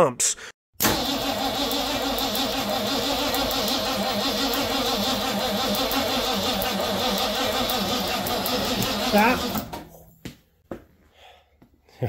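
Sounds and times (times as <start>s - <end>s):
car engine cranking without starting: 0.8s - 9.8s.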